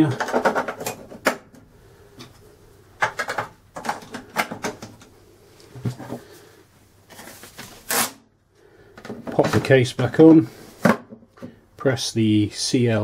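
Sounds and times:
plastic clicks and knocks: 0:00.1 - 0:01.6, 0:03.0 - 0:05.1.

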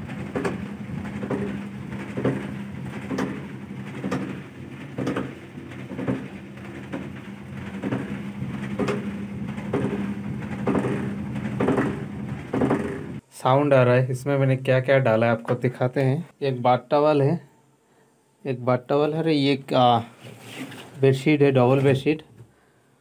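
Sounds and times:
drum knocking inside machine: 0:00.0 - 0:13.2
washing machine motor hum: 0:00.0 - 0:13.3.

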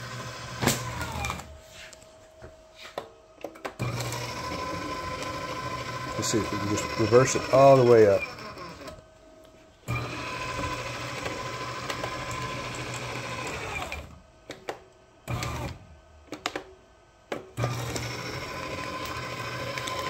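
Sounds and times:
paper shredder motor running: 0:00.0 - 0:01.6, 0:03.7 - 0:09.1, 0:09.8 - 0:14.6, 0:15.2 - 0:15.9, 0:17.5 - 0:20.0.

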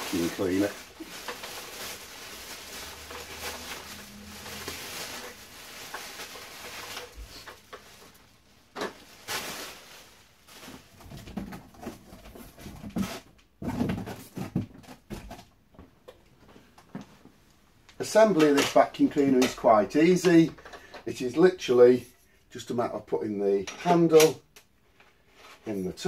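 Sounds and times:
plastic bag crinkling: 0:00.0 - 0:11.6
knocks and thumps: 0:11.0 - 0:16.0.

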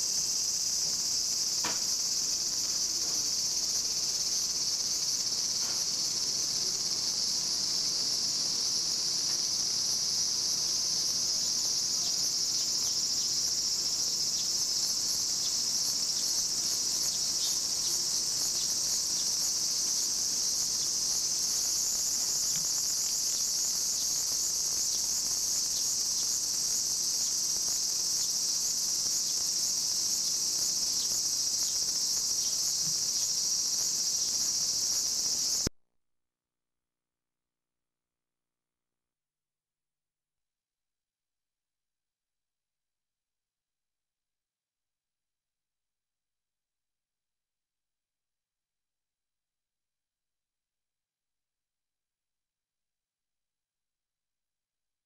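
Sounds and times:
cicadas singing: 0:00.0 - 0:35.7.

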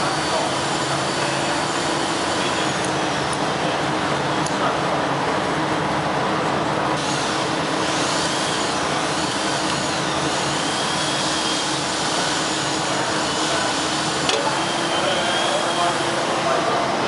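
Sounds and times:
machine motors droning: 0:00.0 - 0:17.0.

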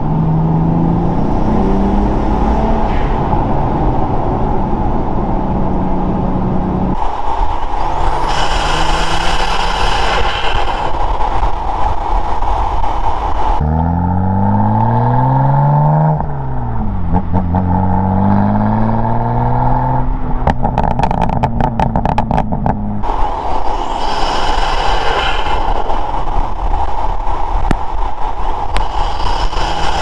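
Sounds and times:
car engine accelerating hard: 0:00.0 - 0:07.0
rushing air noise: 0:00.0 - 0:17.1, 0:23.0 - 0:30.0
exhaust crackles and pops: 0:20.4 - 0:22.8, 0:23.8 - 0:30.0.

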